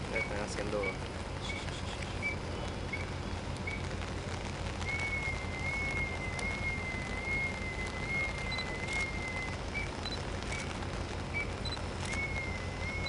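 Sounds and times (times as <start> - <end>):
bosun's pipe whistling: 4.8 - 9.6, 12.1 - 13.0.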